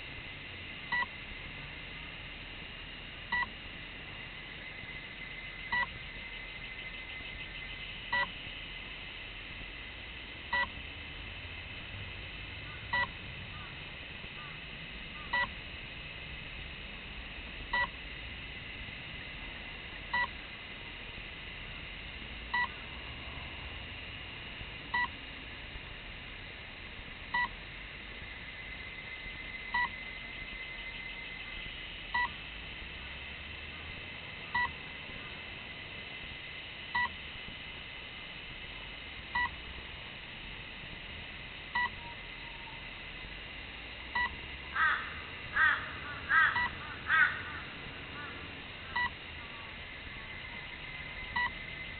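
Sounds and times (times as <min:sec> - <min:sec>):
steady high hiss: 0:00.0 - 0:51.9
short electronic beeps: 0:03.3 - 0:03.5, 0:05.7 - 0:05.9, 0:08.1 - 0:08.4, 0:10.5 - 0:10.7, 0:22.5 - 0:22.7, 0:41.8 - 0:42.2, 0:51.3 - 0:51.6.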